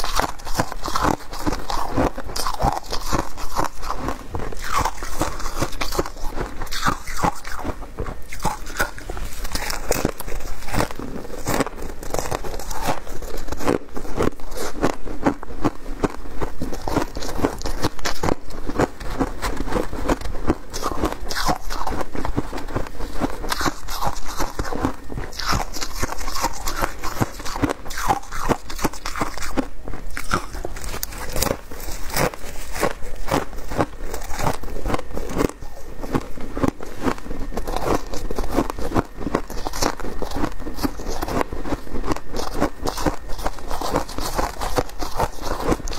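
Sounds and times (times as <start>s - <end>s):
shaved ice crunching: 0.0s - 14.9s, 23.5s - 36.2s.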